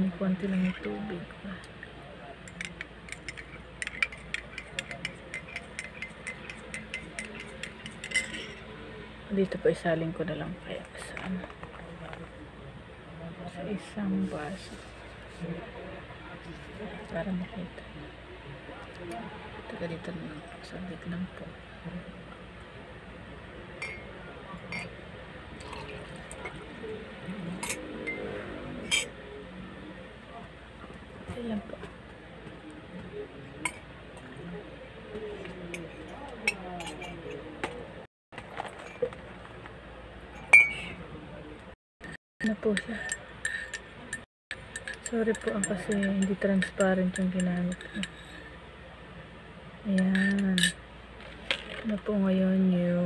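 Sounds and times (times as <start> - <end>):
spoon clinking in ceramic mug: 2.5 - 8.7, 23.8 - 24.1, 27.6 - 28.3, 40.4 - 41.0, 42.7 - 48.3, 50.0 - 50.8
glass clinks: 23.8 - 24.1, 40.4 - 41.0
liquid pouring into glass: 25.6 - 26.7.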